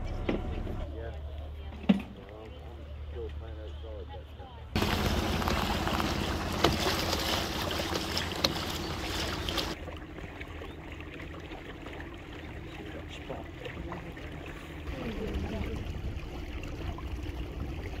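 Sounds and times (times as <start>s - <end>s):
boat motor hum: 0.0s - 18.0s
water lapping: 1.0s - 18.0s
water rushing: 4.8s - 18.0s.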